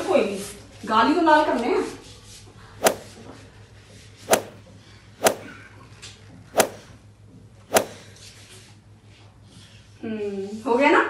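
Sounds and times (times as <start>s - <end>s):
hand slapping cheeks: 2.8s - 3.1s, 4.3s - 4.6s, 5.2s - 5.5s, 6.6s - 6.8s, 7.7s - 8.0s.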